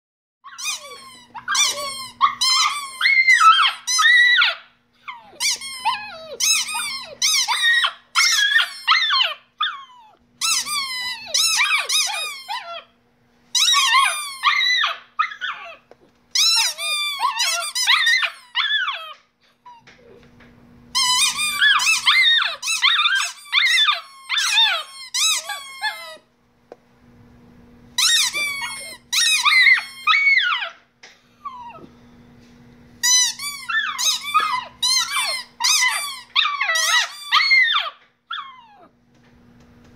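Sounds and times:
squeaky toy squeaking: 0.5s - 12.9s, 13.5s - 19.2s, 20.9s - 26.2s, 28.0s - 30.7s, 33.0s - 38.8s.

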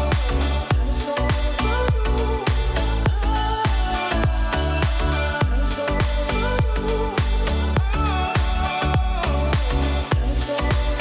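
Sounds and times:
upbeat music with deep drums: 0.0s - 11.0s.

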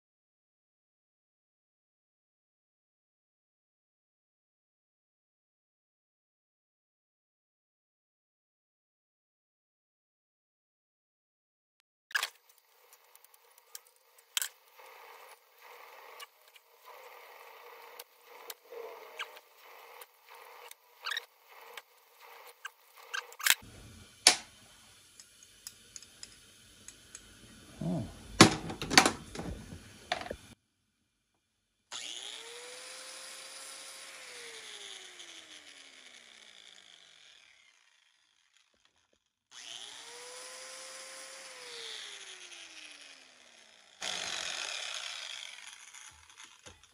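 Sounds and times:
angle grinder whining: 12.2s - 30.6s, 31.9s - 46.9s.

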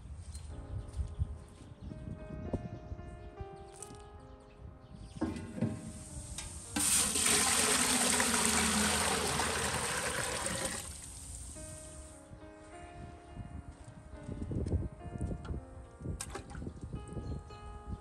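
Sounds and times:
water pouring into metal pot: 6.4s - 11.5s.

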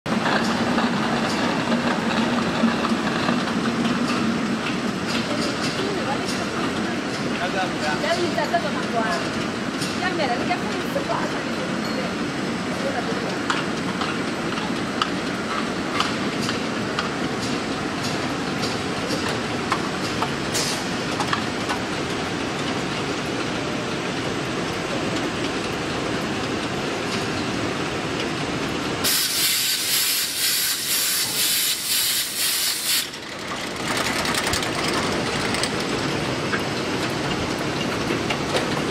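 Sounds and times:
loud hiss: 29.0s - 33.1s
bottling machine clattering: 33.1s - 38.9s.

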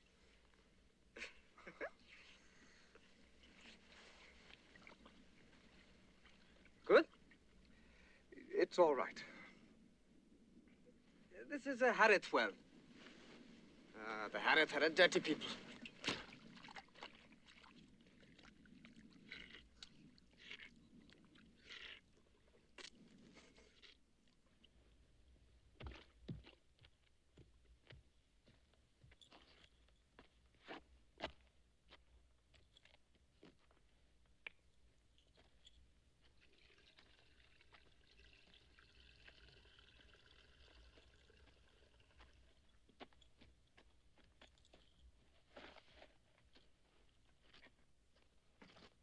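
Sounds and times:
sipping and slurping water: 2.2s - 8.6s, 14.0s - 25.0s, 36.2s - 42.8s.

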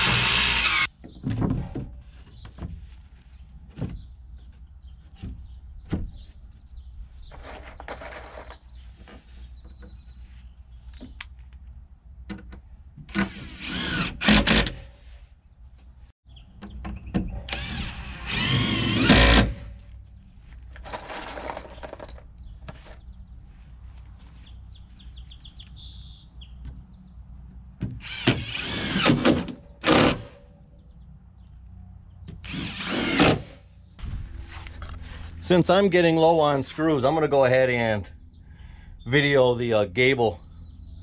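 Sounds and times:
power drill driving screws: 0.0s - 0.9s, 13.1s - 14.9s, 17.5s - 19.7s, 28.0s - 30.4s, 32.4s - 33.6s.

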